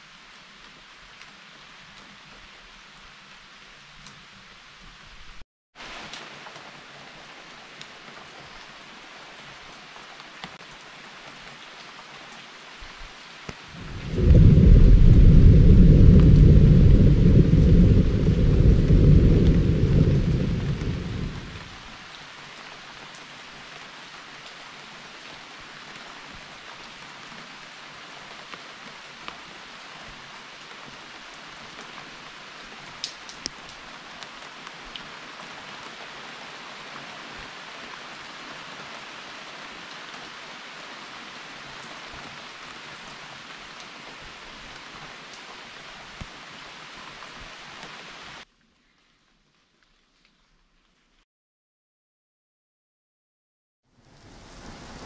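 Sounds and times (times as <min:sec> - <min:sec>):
steady rain: 0:00.0 - 0:51.2, 0:53.9 - 0:55.0
low thunder rumble: 0:13.7 - 0:21.8.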